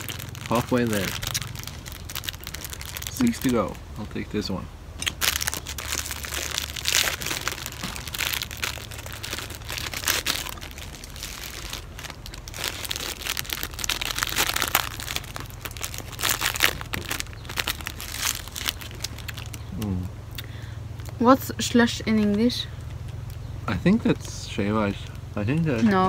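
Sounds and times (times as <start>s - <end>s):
plastic wrapper crinkling: 0.0s - 3.8s, 5.0s - 19.8s.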